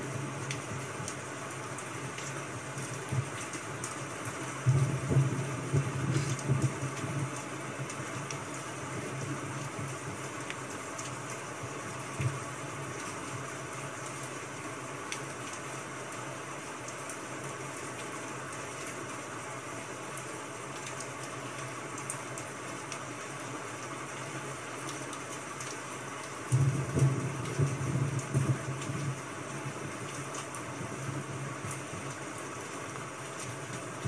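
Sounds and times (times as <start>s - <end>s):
rain hissing: 0.0s - 34.0s
faint ticks: 10.4s - 11.2s.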